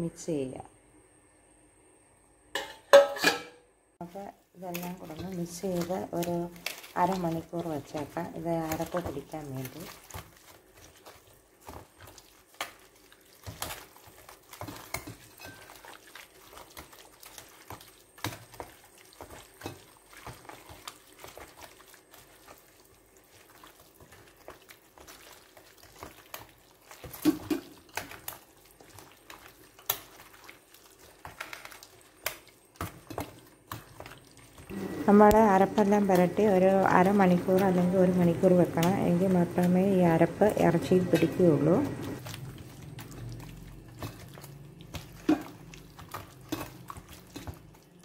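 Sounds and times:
wet squelching of marinade: 4.0 - 48.0.

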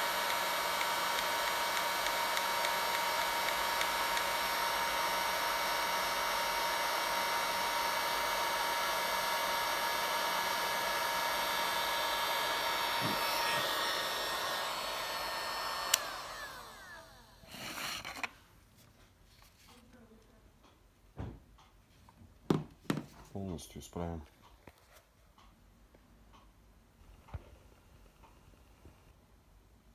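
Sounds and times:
heat gun fan blowing with whine: 0.0 - 17.9.

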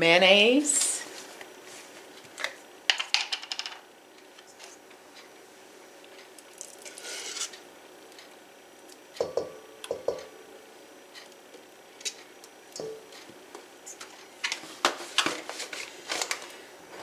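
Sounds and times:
spatula knocking in metal bowl: 9.2 - 10.4.

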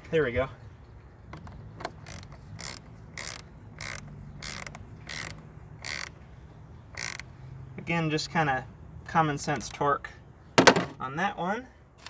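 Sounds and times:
socket ratchet clicking: 1.8 - 6.2, 7.0 - 7.3.

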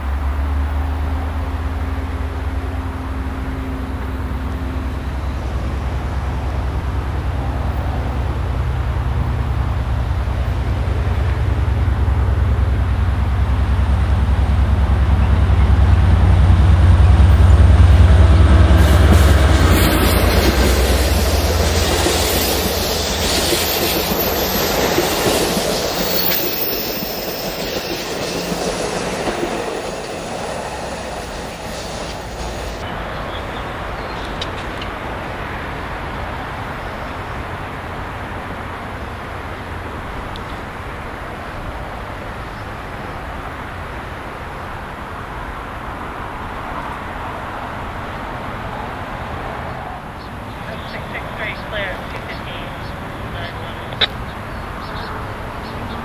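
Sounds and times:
locomotive engine drone: 0.0 - 47.2, 49.8 - 56.0
train wheel noise: 1.6 - 32.9, 50.2 - 56.0.

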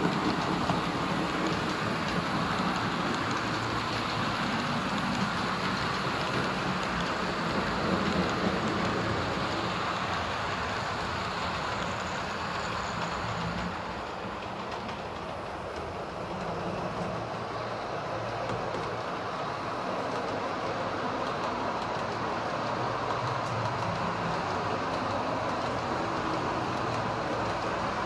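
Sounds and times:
model train rumbling on track: 0.0 - 28.0.

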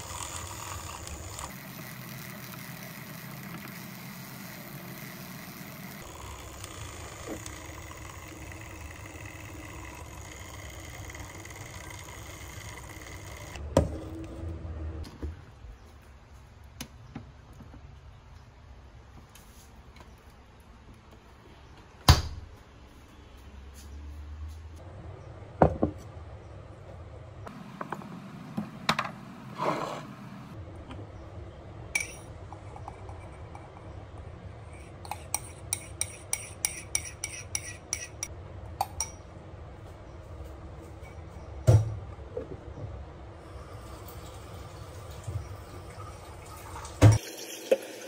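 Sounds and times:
liquid pouring: 43.5 - 48.0.

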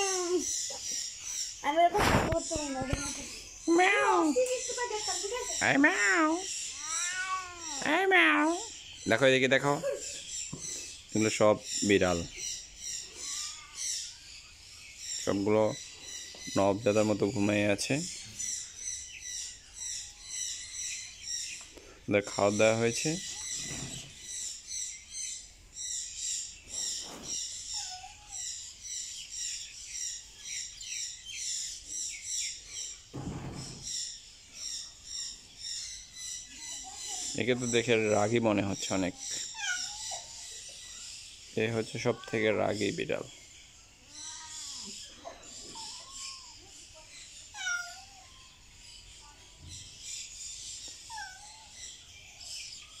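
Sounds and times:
small birds chirping: 0.0 - 53.0
cat meowing: 6.0 - 7.9, 39.5 - 40.3, 47.5 - 48.3, 51.1 - 51.7.

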